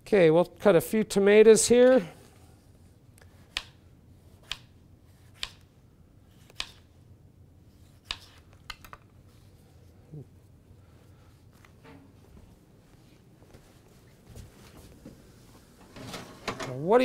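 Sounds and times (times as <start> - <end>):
knife slicing tomato: 3.3 - 5.7.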